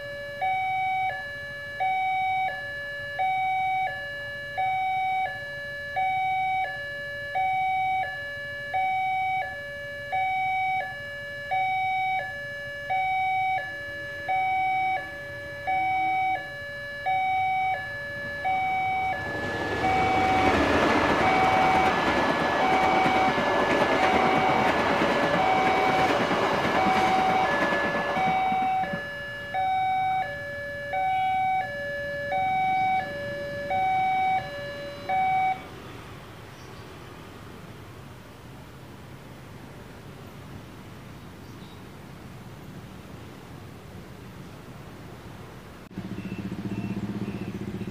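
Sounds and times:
two-tone crossing alarm chime: 0.0 - 35.7
passenger train rushing past: 18.1 - 37.8.

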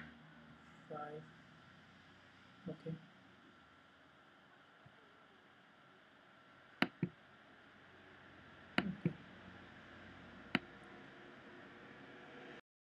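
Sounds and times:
faint steady hiss: 0.0 - 12.5
computer mouse clicks: 6.8 - 7.2, 8.8 - 9.2.

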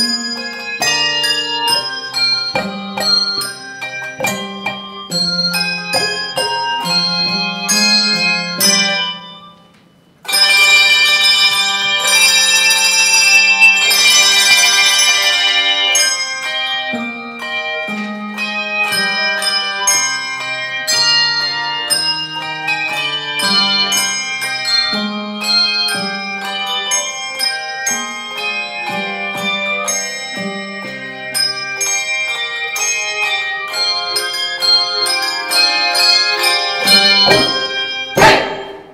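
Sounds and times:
handbell choir ringing: 0.0 - 38.9.

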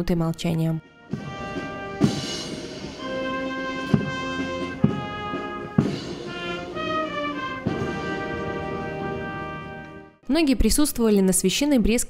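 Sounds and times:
slow orchestral brass music: 0.8 - 10.2
heavy drum strokes: 1.1 - 9.7.

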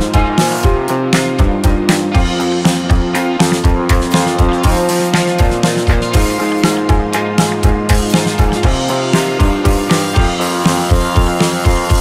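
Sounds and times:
background music with drum beat: 0.0 - 12.0.

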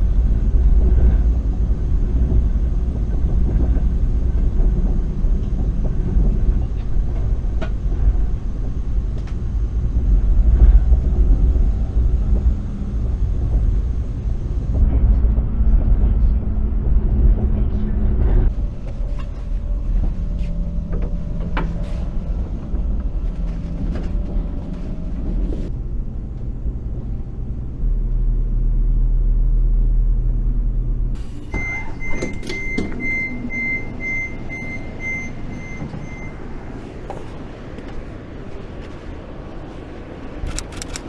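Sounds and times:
train interior rumble: 0.0 - 41.0
train door opening: 18.5 - 25.7, 31.2 - 41.0
quick high door-warning beeps: 31.4 - 36.5.

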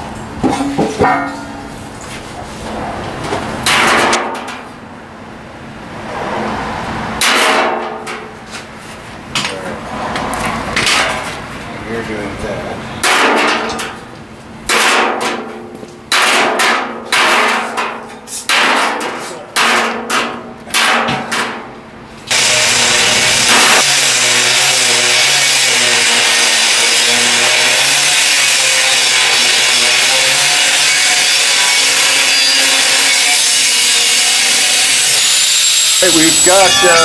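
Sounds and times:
metal strikes on steel drum: 0.5 - 1.7
angle grinder cutting steel: 22.3 - 37.0.

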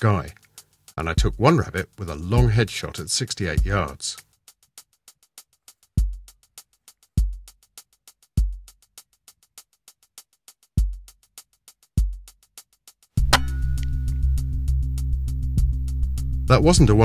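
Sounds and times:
electronic beat: 1.1 - 4.4, 5.8 - 8.9, 10.8 - 11.3, 12.0 - 12.5
deep kick drum thuds: 6.0 - 6.3, 7.2 - 7.5, 8.4 - 8.7, 10.8 - 11.0, 12.0 - 12.2.

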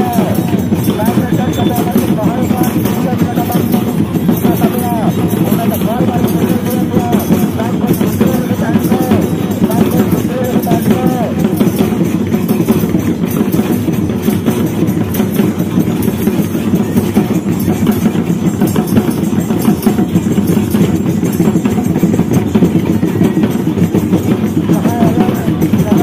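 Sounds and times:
drums playing a steady beat: 0.0 - 26.0.

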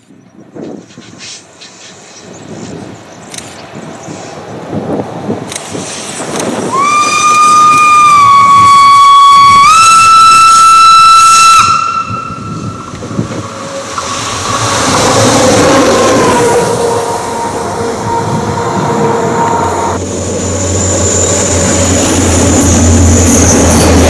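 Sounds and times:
rumble of moving train: 0.0 - 24.0
steam locomotive whistle: 6.6 - 20.0.

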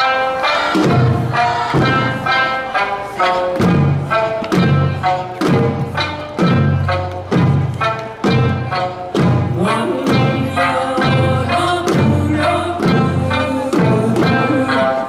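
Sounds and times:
song accompaniment: 0.0 - 15.0
drums struck on a heavy beat: 3.6 - 14.6.

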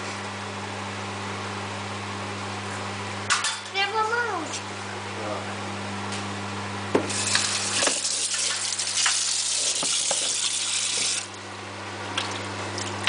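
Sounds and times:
water splashing into sink: 7.1 - 11.3, 12.1 - 13.0.

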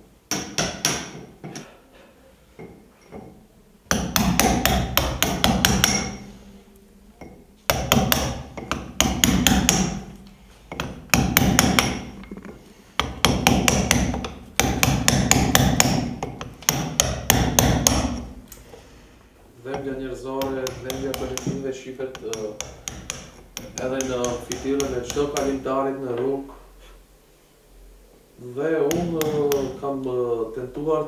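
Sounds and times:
hammer striking chisel on stone: 0.3 - 1.7, 2.6 - 6.3, 7.2 - 10.1, 10.7 - 12.3, 13.0 - 18.3, 19.7 - 25.7, 28.8 - 29.8.

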